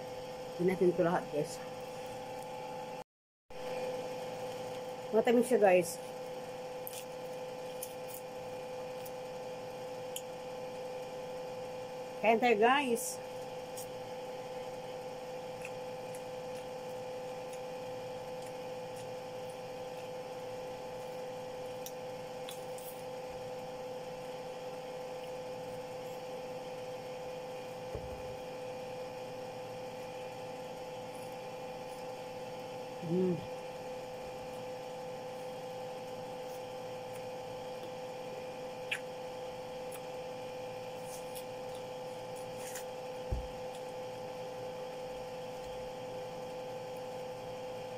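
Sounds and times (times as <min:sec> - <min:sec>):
electrical hum: 0:00.0 - 0:47.9
person humming: 0:33.0 - 0:33.5.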